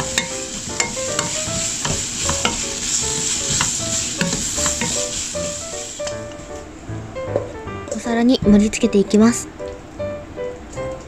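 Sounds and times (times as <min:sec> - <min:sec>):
wooden spatula scraping a pan: 0:00.0 - 0:06.1
food sizzling in a frying pan: 0:00.0 - 0:06.5.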